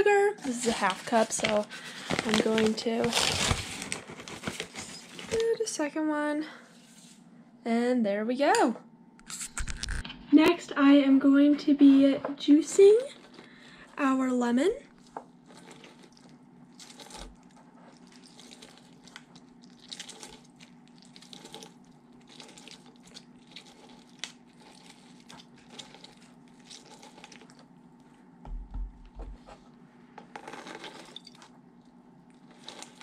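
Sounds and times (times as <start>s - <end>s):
lemon squishing on juicer: 14.9s - 28.3s, 30.2s - 33.0s.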